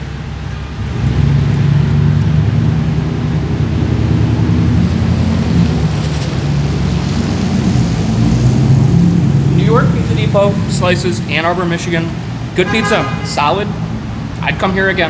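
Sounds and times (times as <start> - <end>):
street traffic rumble: 0.0 - 15.0
vehicle engine running nearby: 0.0 - 15.0.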